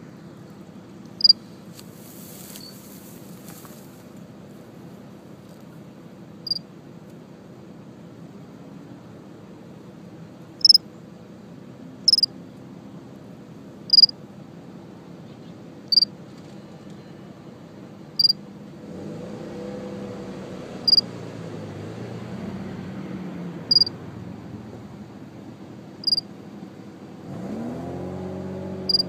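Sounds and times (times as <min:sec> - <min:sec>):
outdoor background noise: 0:00.0 - 0:29.0
short high chirp: 0:02.5 - 0:02.9
vehicle passing: 0:18.8 - 0:26.2, 0:27.2 - 0:29.0.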